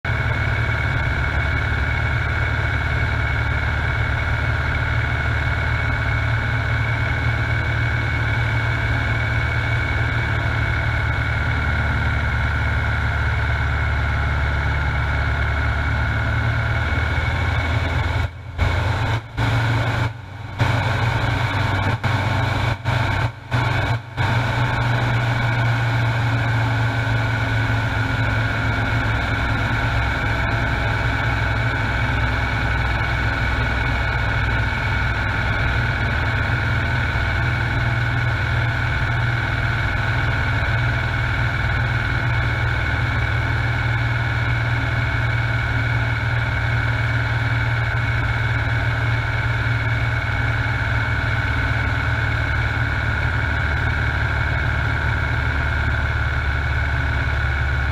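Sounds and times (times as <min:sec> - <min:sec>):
light aircraft engine and propeller: 0:00.1 - 0:57.9.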